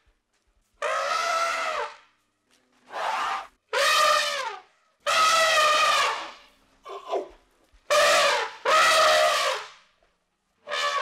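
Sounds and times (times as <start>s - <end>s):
elephant trumpeting: 0.8s - 1.9s, 2.9s - 7.1s.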